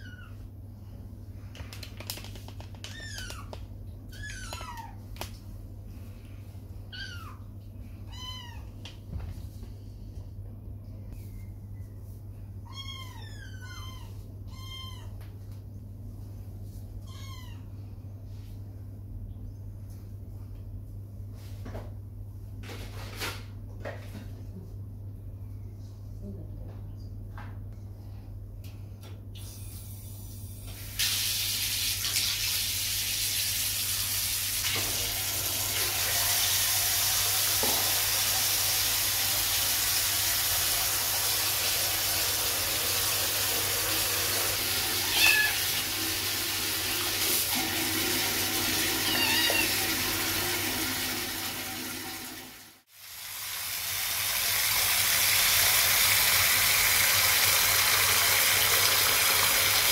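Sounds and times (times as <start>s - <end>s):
kitten meowing: 12.7s - 15.2s, 45.1s - 45.6s, 49.0s - 49.8s
water running into bathtub: 30.8s - 59.9s.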